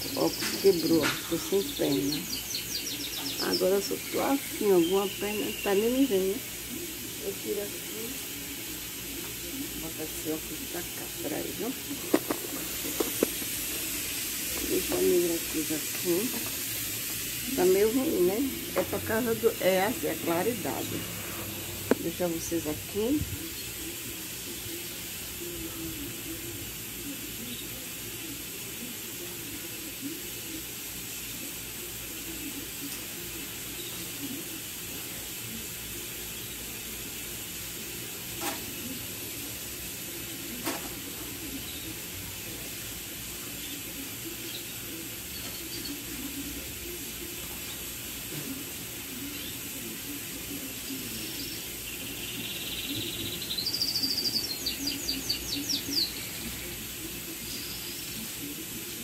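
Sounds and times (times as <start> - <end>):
steady background hiss: 0.0 - 59.0
faint bird chirps: 51.1 - 56.6.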